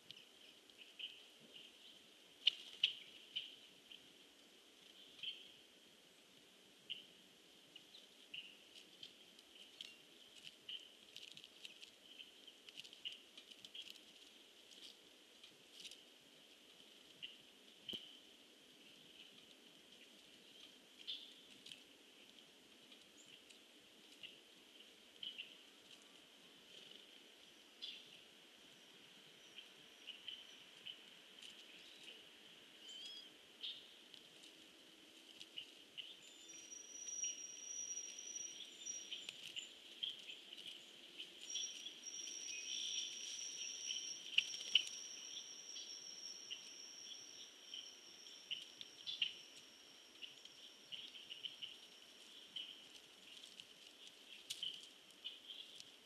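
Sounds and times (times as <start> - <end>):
steady high hiss: 0.0 - 56.0
bird chips and calls: 24.2 - 25.6, 27.6 - 32.2, 32.8 - 34.0, 35.4 - 56.0
thin high steady tone: 36.2 - 39.7, 41.4 - 52.4.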